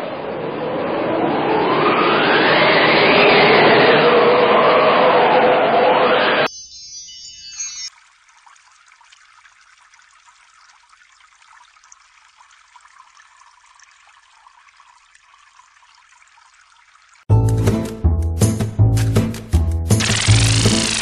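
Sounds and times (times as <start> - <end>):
water trickling into flour: 7.9 - 17.3
loud music: 17.3 - 21.0.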